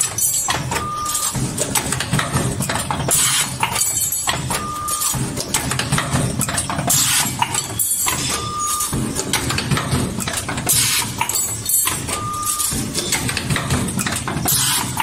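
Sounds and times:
short beep-like tone: 0:00.8 - 0:01.4, 0:07.8 - 0:09.0, 0:12.2 - 0:12.8.

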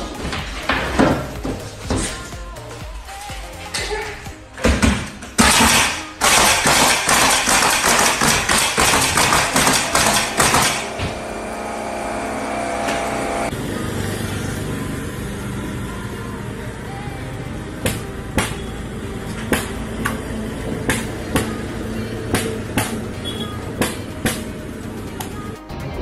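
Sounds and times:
nail gun firing: 0:05.4 - 0:11.2.

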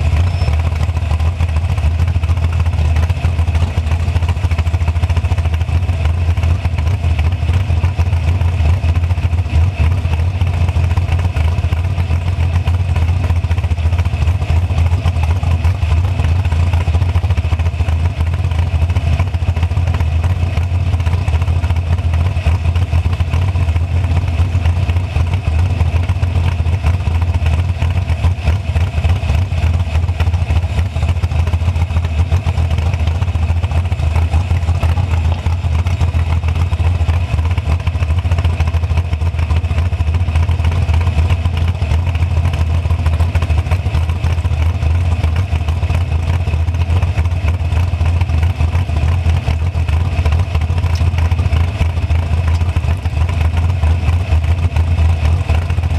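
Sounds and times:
dragster engine idling: 0:00.0 - 0:55.9.

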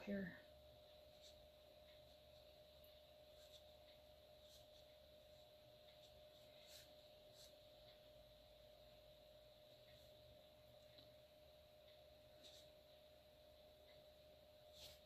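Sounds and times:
faint steady hum: 0:00.0 - 0:15.0
pen scratching on paper: 0:03.2 - 0:07.9.

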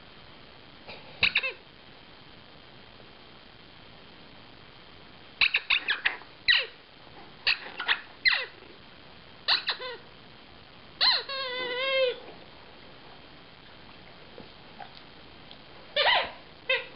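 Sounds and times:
squeaky chew toy squeaking: 0:11.0 - 0:12.2, 0:16.0 - 0:16.9.

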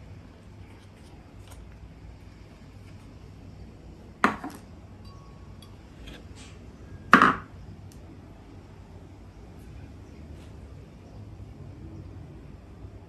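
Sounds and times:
hard objects knocking: 0:04.2 - 0:05.2, 0:07.1 - 0:07.5.

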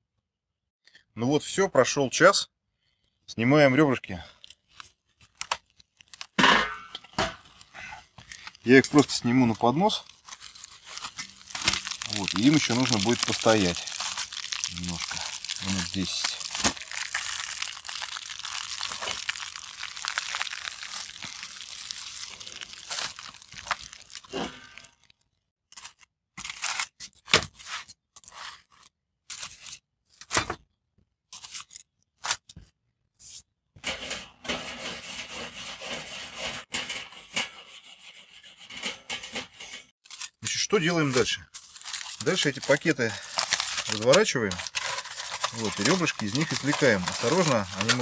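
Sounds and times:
aluminium foil crinkling: 0:04.3 - 0:06.4, 0:07.4 - 0:30.3, 0:39.2 - 0:48.0.

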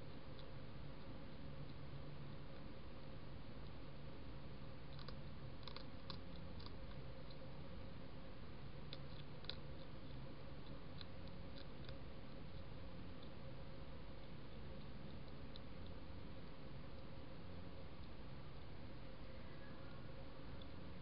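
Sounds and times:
low hiss and hum: 0:00.0 - 0:21.0
hedgehog crunching food pellets: 0:04.8 - 0:18.9.

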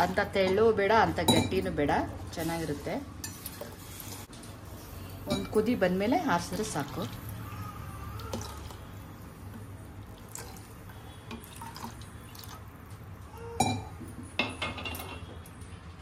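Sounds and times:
water trickling and dripping: 0:08.1 - 0:13.3.

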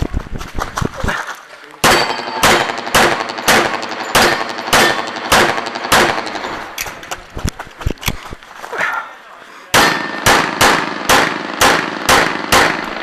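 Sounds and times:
pistol shots: 0:01.8 - 0:06.9, 0:09.8 - 0:13.0.

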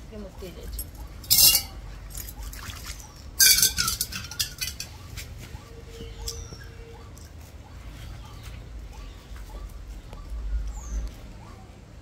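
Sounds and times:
metal bowl clinking and scraping: 0:01.2 - 0:02.5, 0:03.4 - 0:05.0.

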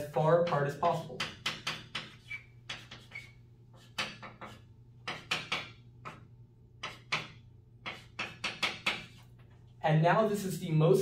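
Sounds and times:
chalk scratching on chalkboard: 0:00.4 - 0:06.2, 0:06.8 - 0:09.3
chalk squeaks: 0:01.9 - 0:05.4, 0:07.8 - 0:09.3.

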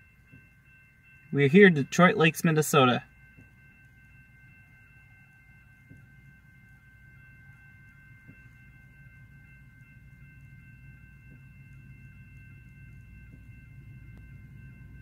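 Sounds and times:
crossing warning bell ringing: 0:00.0 - 0:15.0
low rumble: 0:03.0 - 0:15.0.

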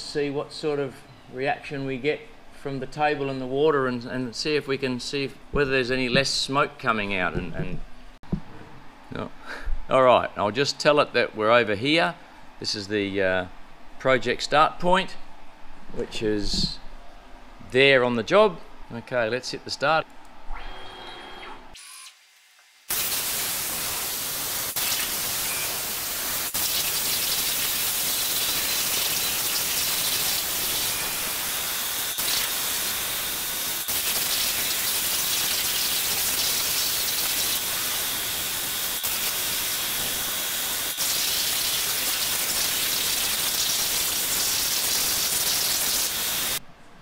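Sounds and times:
plasma torch hissing: 0:22.8 - 0:46.6.

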